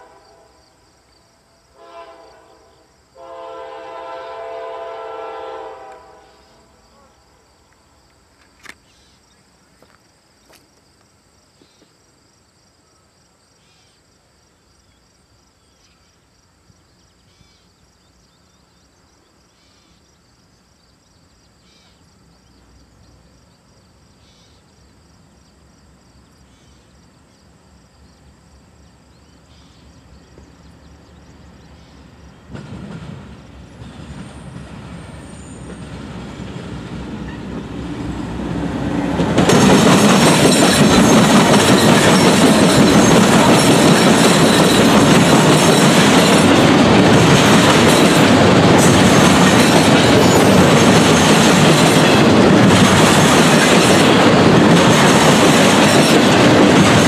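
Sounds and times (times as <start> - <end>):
train horn: 0.0 - 0.9, 1.5 - 7.4
low rumble of train: 0.0 - 11.8, 12.7 - 57.0
insects chirping: 0.0 - 57.0.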